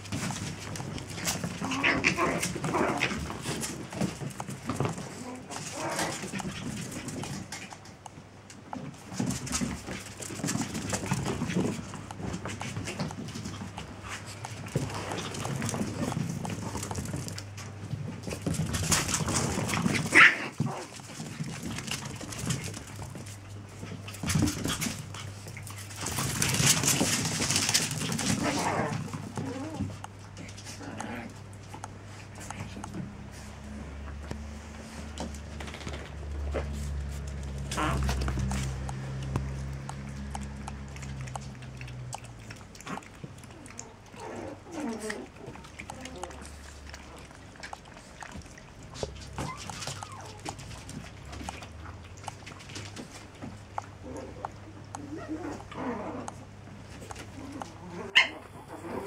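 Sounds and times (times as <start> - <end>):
puppies scuffling: 0.0 - 59.0
puppy claws clicking on tiles: 35.2 - 57.8
puppy high yelp: 49.4 - 50.6.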